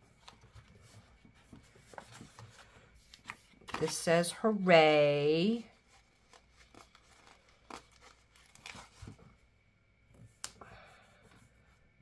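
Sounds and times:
paper rustling: 0:00.0 - 0:04.3, 0:05.5 - 0:09.4.

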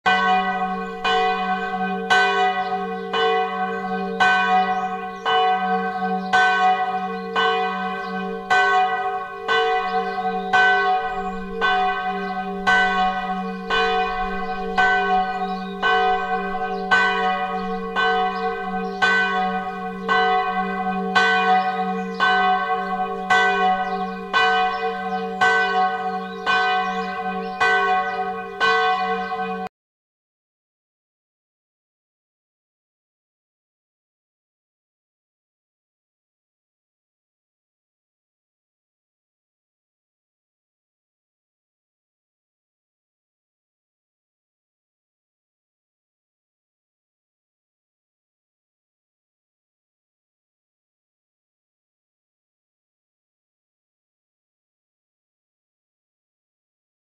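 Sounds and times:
church bells ringing: 0:00.1 - 0:29.7.

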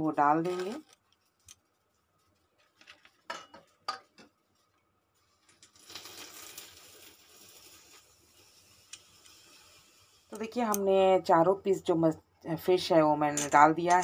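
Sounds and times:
soft continuous rustle: 0:00.1 - 0:11.1.

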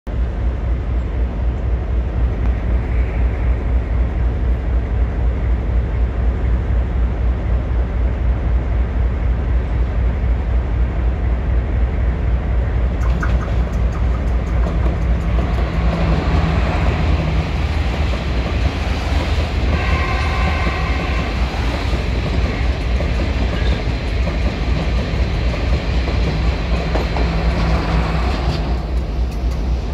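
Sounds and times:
train rumble: 0:00.1 - 0:29.9
train wheel clicks on rail joints: 0:12.9 - 0:19.4, 0:21.7 - 0:29.9
train horn blast: 0:19.6 - 0:21.8.

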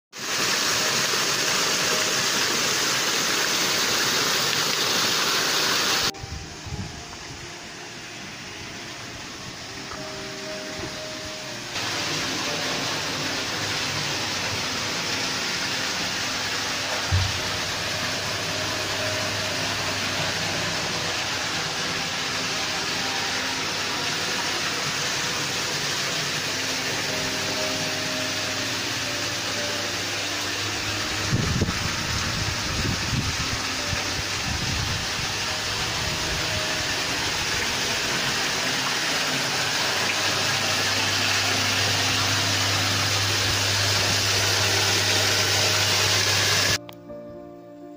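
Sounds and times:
waterfall pouring into pond: 0:00.1 - 0:06.2, 0:07.1 - 0:46.8.

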